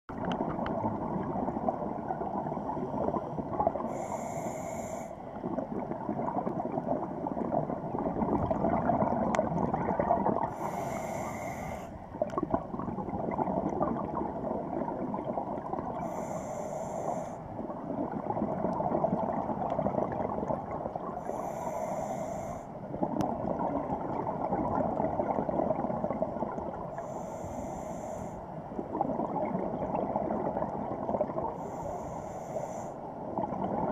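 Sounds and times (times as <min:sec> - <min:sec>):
exhaust bubbling underwater: 0:00.1 - 0:04.1, 0:05.3 - 0:16.3, 0:17.5 - 0:21.5, 0:22.8 - 0:27.2, 0:28.7 - 0:31.7, 0:33.2 - 0:33.9
regulator inhale hiss: 0:03.1 - 0:05.4, 0:10.4 - 0:12.2, 0:16.0 - 0:17.6, 0:21.2 - 0:22.9, 0:26.9 - 0:28.7, 0:31.5 - 0:33.2.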